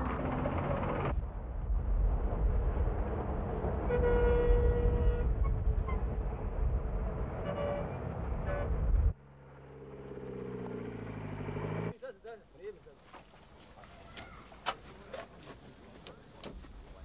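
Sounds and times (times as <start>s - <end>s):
heavy low rumble: 0.9s - 9.2s
vehicle horn toot: 3.8s - 6.0s, 7.4s - 8.8s.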